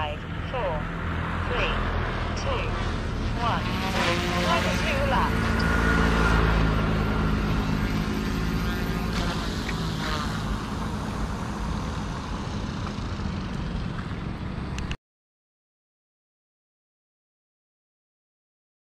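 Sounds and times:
rc helicopter whirring: 0.2s - 15.0s.

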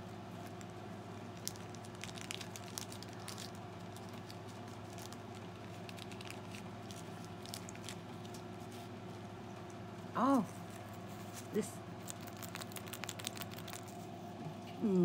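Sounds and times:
steady low hum: 0.0s - 15.0s
packaging crinkling: 0.4s - 8.7s, 10.6s - 14.1s.

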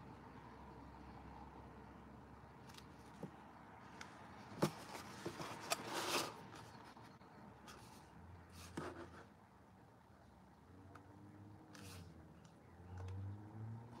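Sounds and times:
scraping rustle: 4.6s - 6.9s.

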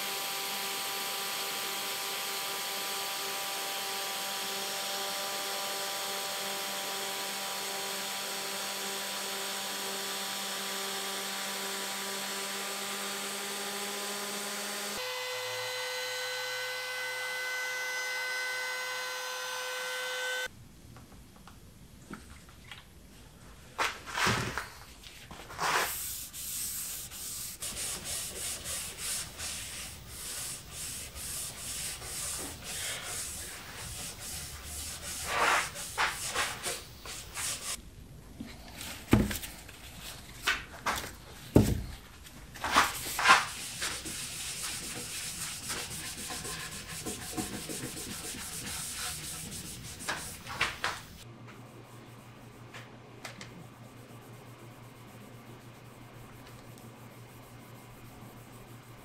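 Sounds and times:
hand sanding wood: 25.5s - 37.8s, 42.6s - 51.2s, 53.8s - 59.0s
low steady hum: 51.2s - 59.0s.

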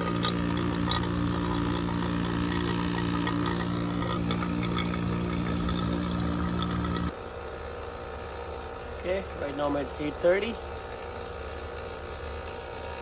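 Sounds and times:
vacuum pump motor hum: 0.0s - 13.0s.

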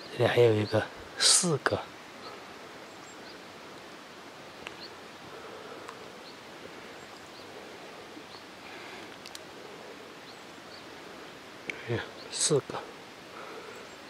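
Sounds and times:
steady hiss: 0.0s - 14.0s
small clicks: 9.1s - 9.5s.

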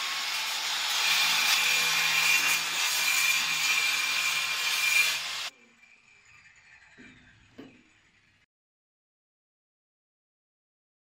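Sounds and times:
power tool cutting with high whine: 0.0s - 5.6s.

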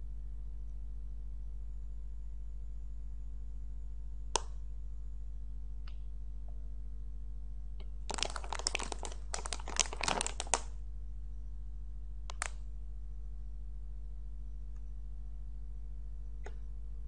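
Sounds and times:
steady low hum: 0.0s - 17.0s
plastic snack bag crinkling: 8.1s - 10.8s, 12.3s - 12.6s.

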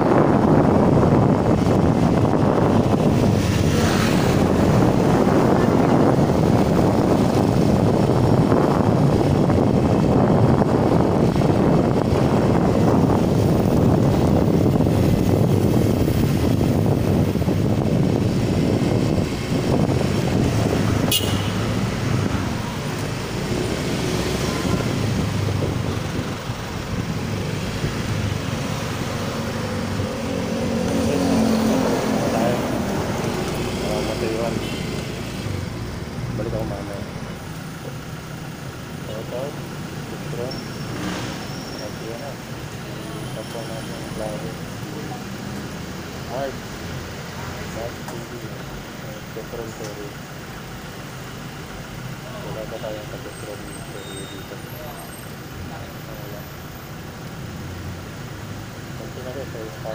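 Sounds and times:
wind buffeting headset microphone: 0.0s - 36.7s.

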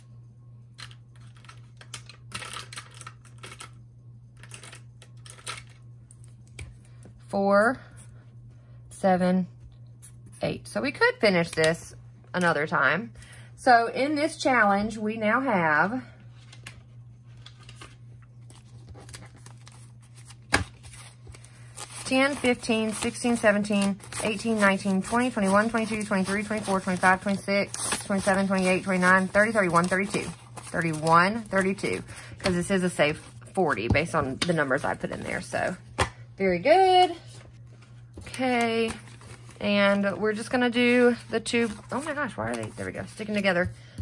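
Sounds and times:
steady low hum: 0.0s - 44.0s
paper bills clicking and rustling: 0.8s - 3.8s, 4.4s - 5.8s, 17.4s - 33.3s.

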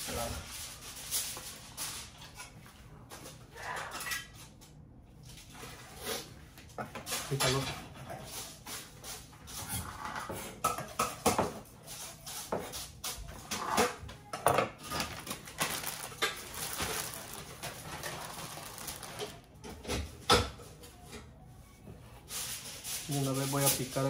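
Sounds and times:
plastic bag crinkling: 14.9s - 19.6s.

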